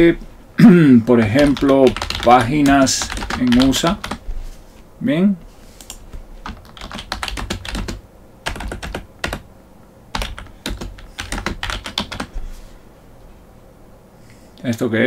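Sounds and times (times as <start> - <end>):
typing on computer keyboard: 1.2 - 4.2, 5.8 - 9.5, 10.1 - 12.3.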